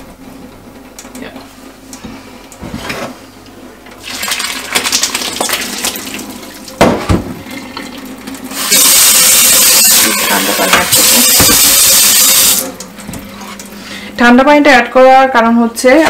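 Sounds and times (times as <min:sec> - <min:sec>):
water splashing in steel sink: 0:04.0 - 0:06.8
tap running into steel sink: 0:10.7 - 0:11.8.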